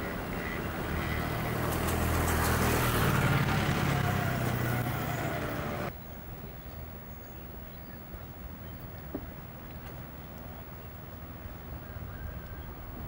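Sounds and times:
motor scooters riding past: 0:00.0 - 0:05.9
calm waterside ambience: 0:00.0 - 0:13.0.

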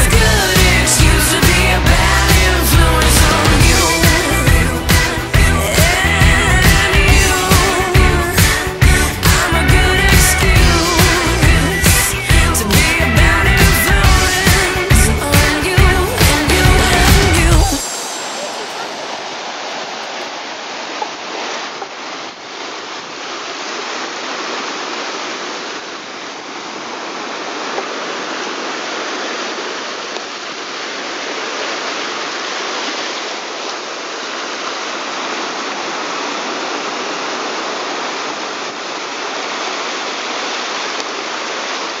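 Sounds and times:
rushing water: 0:00.0 - 0:42.0.

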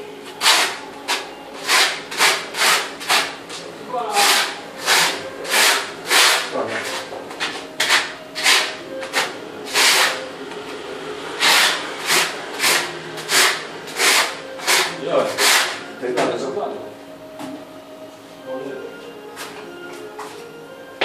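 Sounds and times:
trowel scraping mortar on tile: 0:01.6 - 0:03.3, 0:04.2 - 0:07.1, 0:07.8 - 0:10.2, 0:11.4 - 0:15.8.

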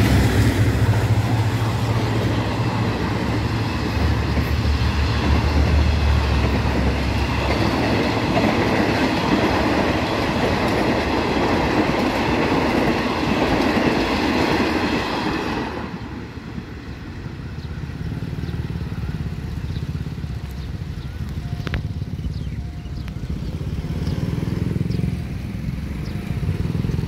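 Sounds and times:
vehicle engines rumbling: 0:00.0 - 0:13.2, 0:16.8 - 0:27.0
train coaches rolling past: 0:00.0 - 0:27.0
motorcycles: 0:17.3 - 0:27.0.

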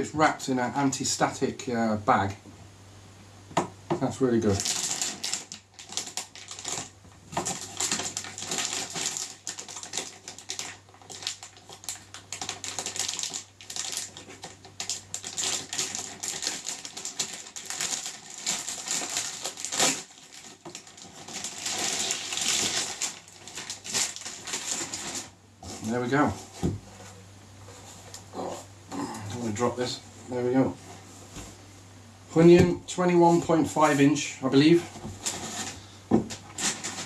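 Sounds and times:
plastic bag crinkling: 0:04.4 - 0:26.0, 0:35.0 - 0:37.0.

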